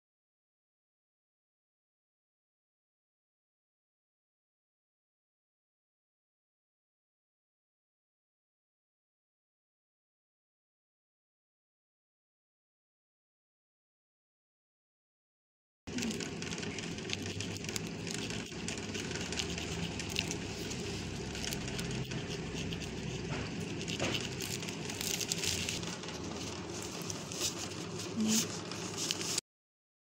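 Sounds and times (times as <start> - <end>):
low steady hum: 15.9 - 29.4
tracing wheel rasping on paper: 15.9 - 29.4.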